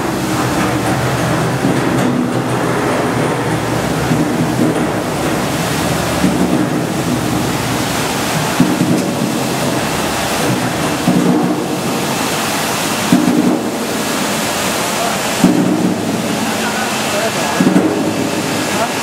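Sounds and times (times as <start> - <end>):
water rushing and splashing: 0.0 - 19.0.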